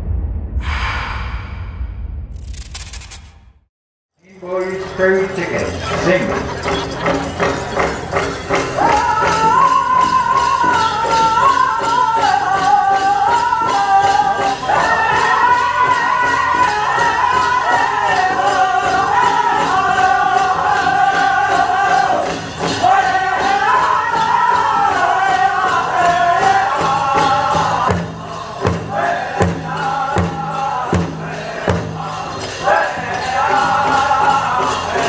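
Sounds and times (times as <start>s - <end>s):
bells jingling: 4.2s - 35.0s
group singing in high voices: 8.8s - 35.0s.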